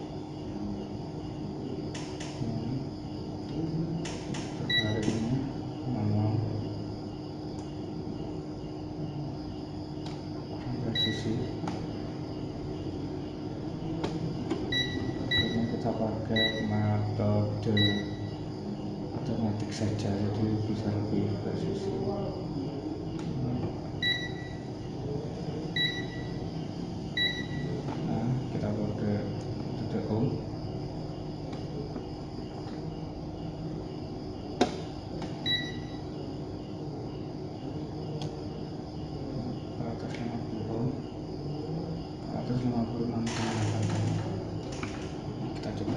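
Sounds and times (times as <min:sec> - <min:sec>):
background hum: 0:00.0 - 0:45.9
sharp click: 0:01.9 - 0:02.4, 0:04.0 - 0:05.3
multimeter beeps: 0:04.6 - 0:05.3, 0:10.9 - 0:11.5, 0:14.7 - 0:16.9, 0:17.7 - 0:18.4, 0:24.0 - 0:24.7, 0:25.7 - 0:26.4, 0:27.2 - 0:27.8, 0:35.4 - 0:36.1.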